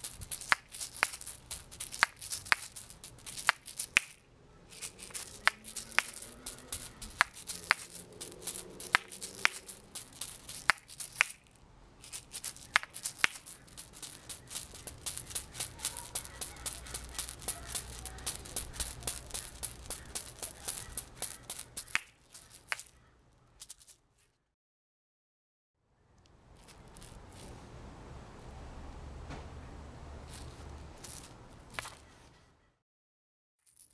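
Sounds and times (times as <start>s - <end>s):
shaker seeds rattling and clacking: 0.0s - 23.0s, 23.6s - 24.0s, 26.6s - 27.5s, 30.3s - 32.1s, 33.6s - 33.9s.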